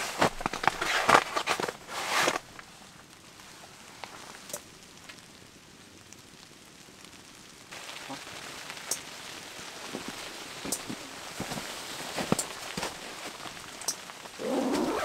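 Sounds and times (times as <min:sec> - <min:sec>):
boots and clothing rustling: 0:00.0 - 0:02.8, 0:09.7 - 0:15.0
quiet steady hiss: 0:00.0 - 0:15.0
wood fire crackling: 0:00.0 - 0:15.0.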